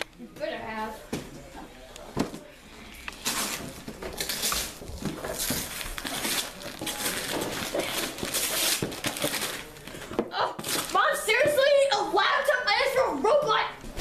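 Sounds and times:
wrapping paper tearing and crinkling: 3.1 - 11.3.

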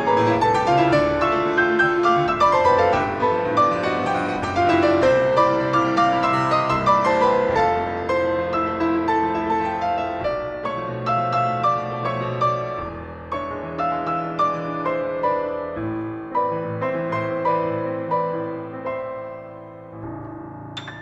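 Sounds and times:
classical piano piece: 0.0 - 21.0.

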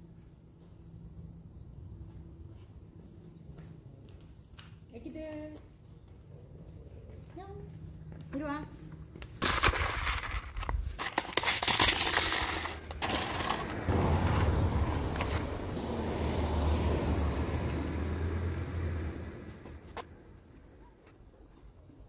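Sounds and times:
low hum: 8.8 - 20.9
dry kibble rattling and crunching: 9.4 - 13.8
scraping and rustling: 9.4 - 13.9
food bowls clattering: 11.0 - 13.9.

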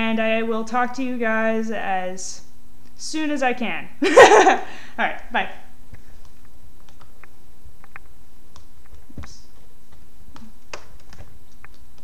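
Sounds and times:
low room hum: 0.0 - 12.0
faint clicks and ticks: 5.9 - 12.0.

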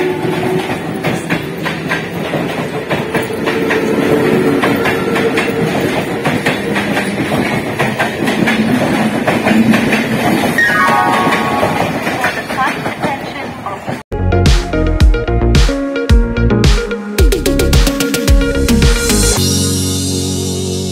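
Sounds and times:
train wheels clicking over rail joints: 0.0 - 10.6.

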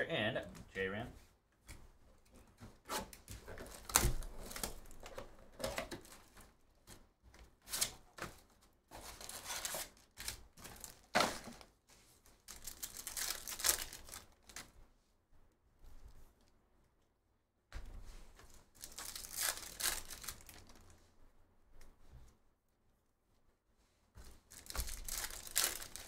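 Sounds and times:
plastic wrapping crinkling and tearing: 3.2 - 6.5, 8.9 - 14.8, 18.7 - 21.0, 24.4 - 26.0.

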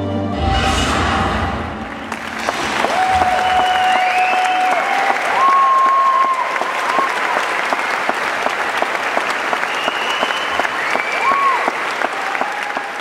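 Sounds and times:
audience applauding: 1.9 - 13.0
whistles: 3.2 - 4.8, 9.2 - 11.8.

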